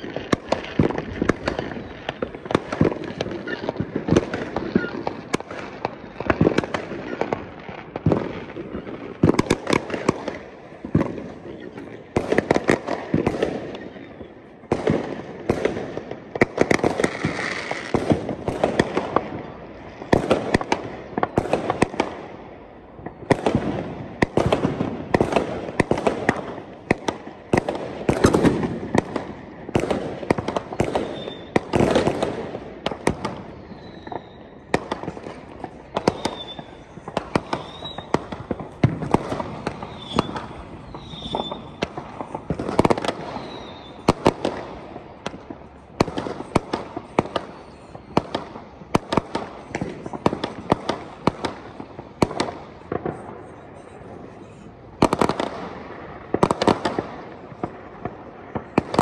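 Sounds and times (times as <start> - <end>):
firework whistles: 0.0 - 7.4, 13.2 - 14.6, 30.5 - 44.4, 45.6 - 50.5
fireworks bangs and crackling: 0.0 - 59.0.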